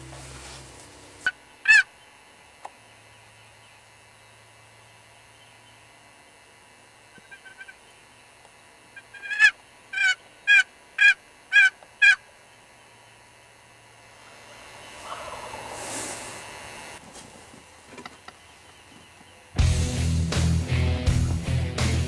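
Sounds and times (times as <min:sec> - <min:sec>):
turkey call yelps: 0:01.2 - 0:02.0, 0:07.2 - 0:07.8, 0:09.0 - 0:12.3, 0:15.0 - 0:15.8
rushing hiss: 0:15.3 - 0:16.5.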